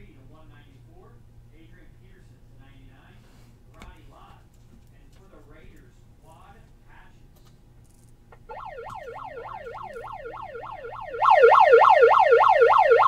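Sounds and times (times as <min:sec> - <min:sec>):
siren wailing up and down: 0:08.5 - 0:13.0.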